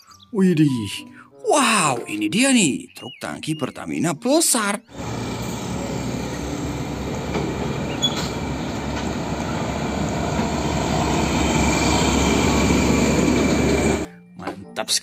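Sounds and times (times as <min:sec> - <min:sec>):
truck diesel engine driving past: 0:04.9 - 0:14.1
tyres rolling: 0:05.0 - 0:14.1.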